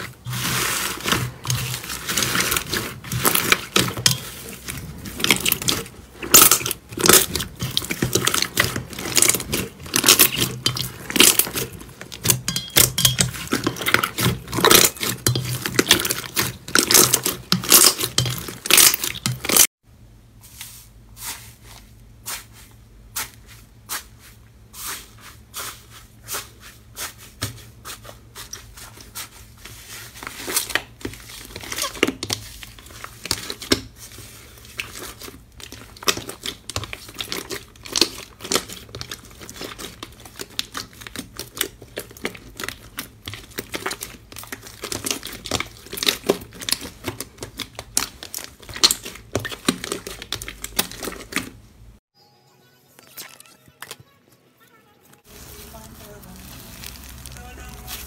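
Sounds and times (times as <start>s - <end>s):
slime crackling and popping: 0.0s - 19.7s, 34.7s - 51.5s, 55.3s - 58.0s.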